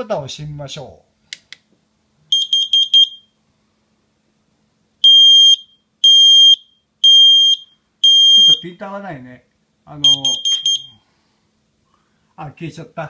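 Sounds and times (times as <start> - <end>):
loud alarm beeps: 2.3 - 3.3, 5.0 - 8.8, 10.0 - 11.0
short high beeps: 5.1 - 8.7, 10.0 - 11.0.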